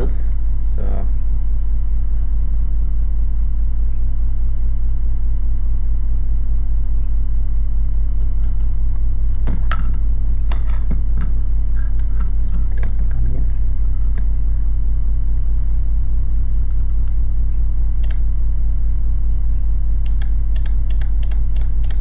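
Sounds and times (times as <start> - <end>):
low electrical hum: 0.0 - 22.0
impulse counter ratchet clicks: 8.1 - 14.6, 16.6 - 18.4, 19.4 - 22.0.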